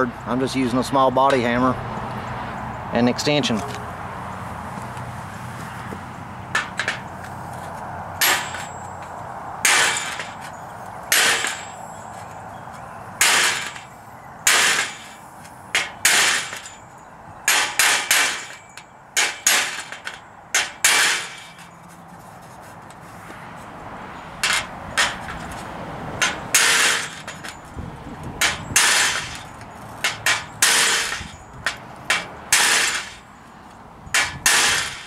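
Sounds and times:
hammer tapping metal: 8.2 - 11.8, 26.2 - 27.6, 28.4 - 33.3.

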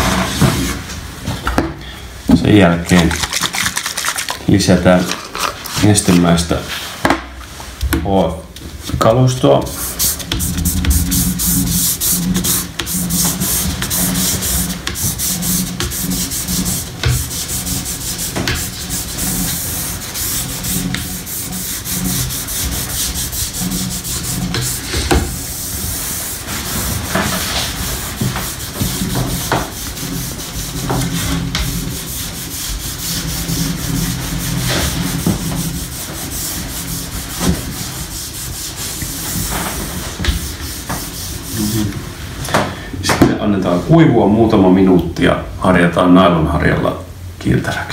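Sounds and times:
sponge scrubbing ski base: 2.6 - 6.9, 9.1 - 42.0.

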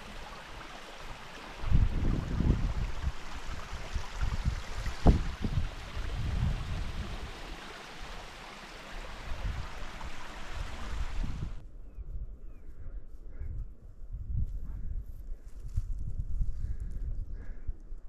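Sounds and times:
stream running over rocks: 0.0 - 11.6
wind buffeting microphone: 1.5 - 7.6, 9.1 - 18.0.

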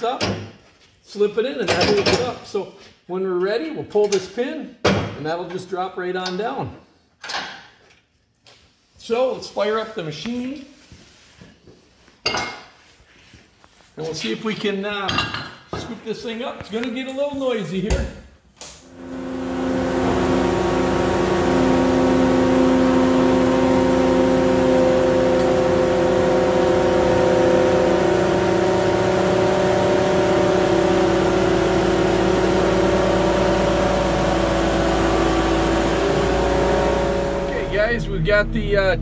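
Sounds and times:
diesel engine running: 18.9 - 39.0.

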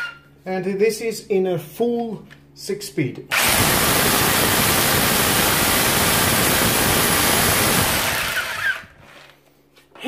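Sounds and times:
hammer drill drilling into concrete: 3.3 - 9.0.

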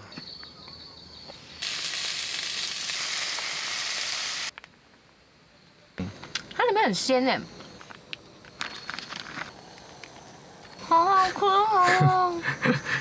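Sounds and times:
food sizzling in a pan: 1.6 - 4.5.

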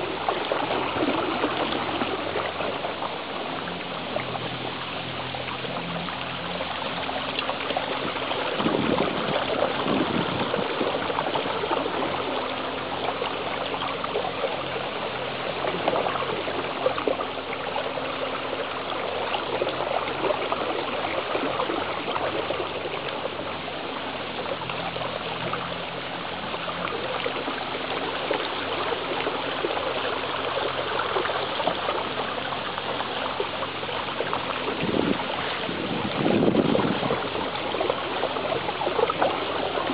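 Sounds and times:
paddle wheels churning water: 0.0 - 39.9.

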